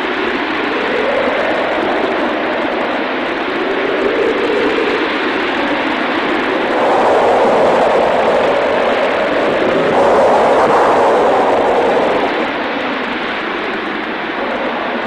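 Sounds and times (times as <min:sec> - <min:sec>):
loud rushing noise: 0:06.3 - 0:13.2.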